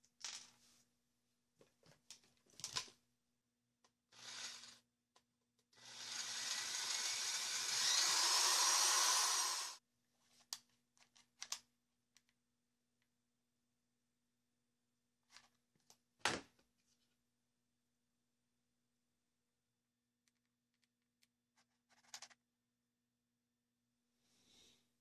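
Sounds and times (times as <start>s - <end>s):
electric drill driving screw: 4.2s - 4.8s, 5.8s - 9.8s
clicks and knocks of handling: 10.3s - 12.4s.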